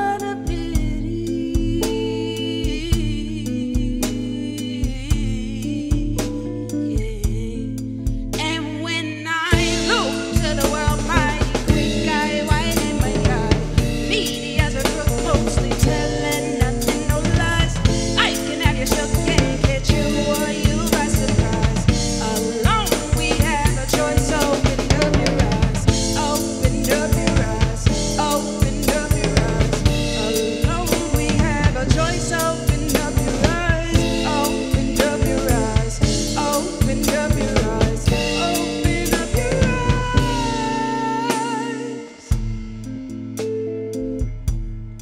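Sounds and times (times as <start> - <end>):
woman singing: 0.0 - 42.5
drum kit beat: 0.0 - 45.0
electric guitar: 0.0 - 45.0.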